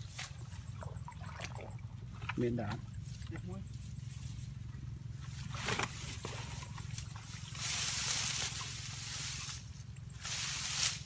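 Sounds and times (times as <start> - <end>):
footsteps crunching dry grass: 5.2 - 11.0
hoe scraping dry ground: 5.2 - 11.0.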